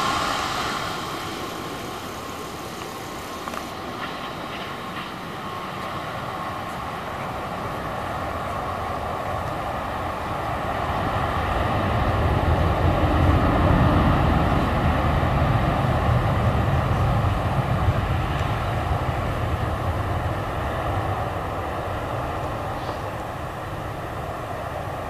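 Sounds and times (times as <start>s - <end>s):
car passing rumble: 0.0s - 4.4s
jet engines roaring: 0.0s - 25.0s.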